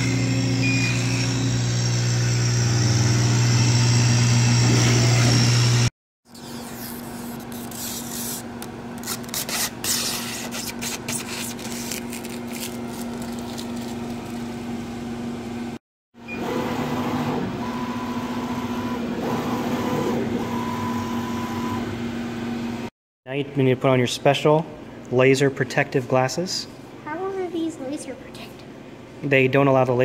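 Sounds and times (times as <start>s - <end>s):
laser cutter humming: 0.0s - 8.0s.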